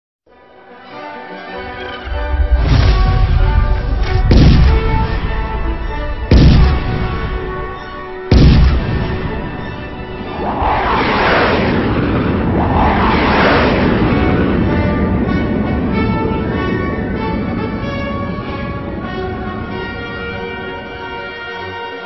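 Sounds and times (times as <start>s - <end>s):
rushes of noise: 2.0s - 19.0s
heavy booming hits: 2.2s - 10.4s.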